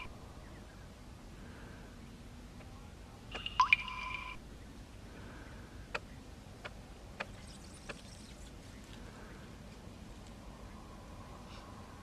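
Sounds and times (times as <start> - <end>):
water drops dripping: 3.3 - 4.4.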